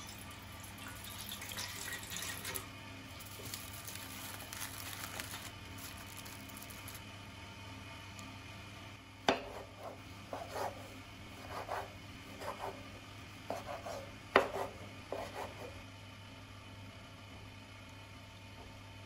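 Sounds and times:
knife scraping cutting board: 9.3s - 12.8s, 13.5s - 15.8s.

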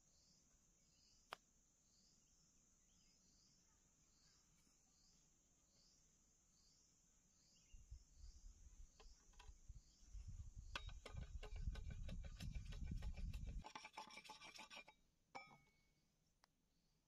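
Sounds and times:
machete scraping bamboo: 10.8s - 15.0s.

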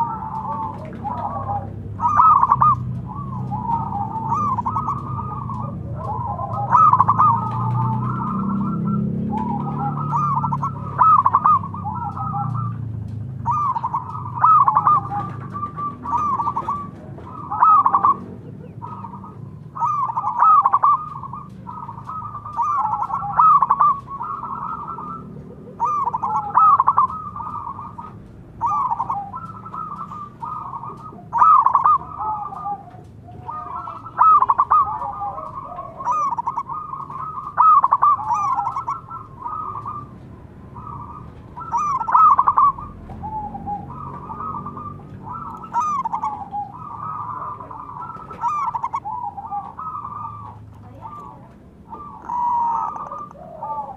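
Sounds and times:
doves cooing: 0.0s - 53.9s.

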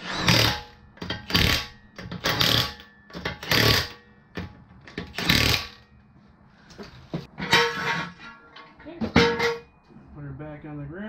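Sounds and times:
impact wrench hammering: 0.2s - 6.0s.

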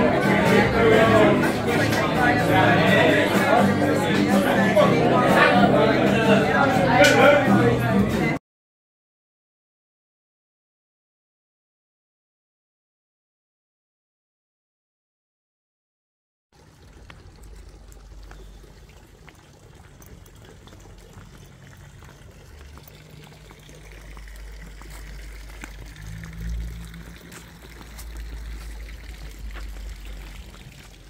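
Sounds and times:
water splashing and trickling: 16.5s - 31.0s
low rumble: 23.5s - 30.7s.

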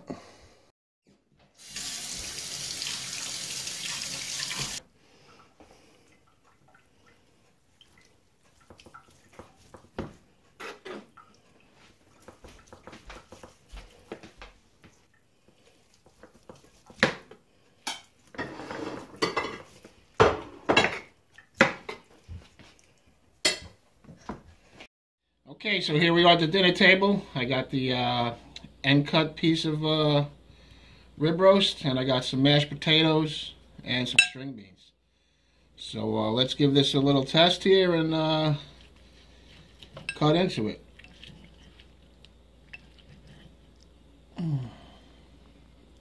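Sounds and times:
water running from a tap: 1.6s - 4.8s.

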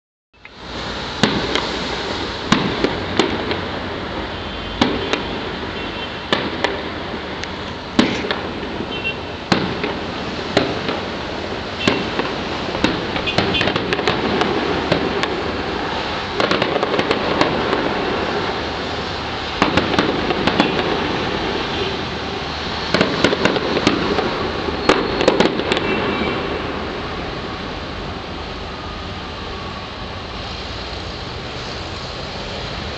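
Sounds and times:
fireworks crackling: 0.4s - 32.9s
firework shells bursting: 1.2s - 3.8s, 4.8s - 26.4s.

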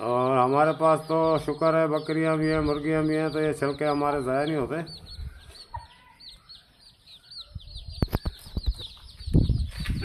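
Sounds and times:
chicks peeping: 0.0s - 10.0s
hen clucking: 0.0s - 10.0s.

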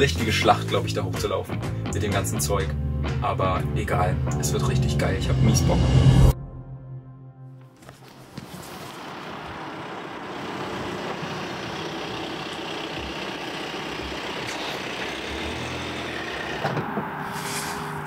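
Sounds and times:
car engine and tyres rushing: 7.8s - 18.0s.

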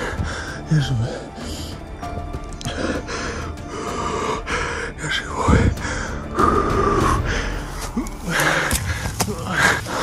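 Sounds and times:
background music: 0.0s - 10.0s
man breathing hard and gasping: 2.6s - 10.0s.

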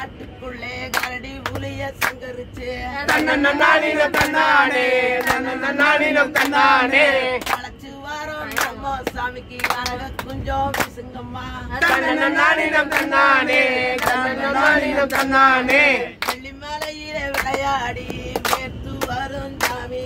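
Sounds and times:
group singing folk song: 0.0s - 20.0s
sharp hand claps: 0.9s - 2.3s, 4.1s - 4.4s, 5.2s - 5.5s, 7.4s - 7.7s, 16.2s - 19.8s.

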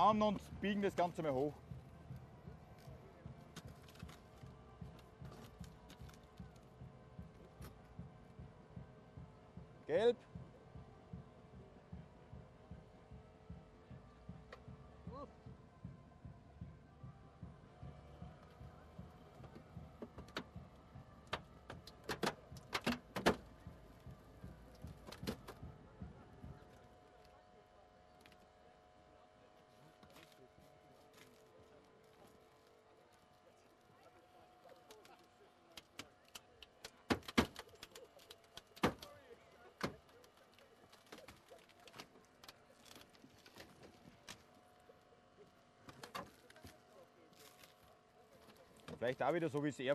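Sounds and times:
car body cracking and snapping: 21.2s - 25.6s, 34.7s - 44.5s, 45.8s - 46.8s.

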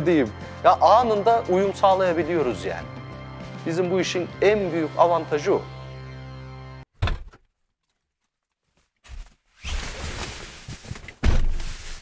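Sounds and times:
clothing rustling on leather seat: 8.7s - 12.0s.

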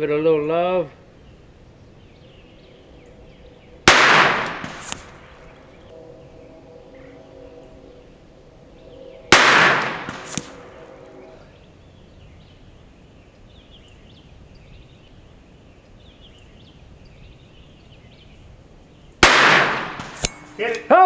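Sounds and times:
revolver shot: 3.9s - 5.3s, 9.3s - 10.7s, 19.2s - 20.5s.

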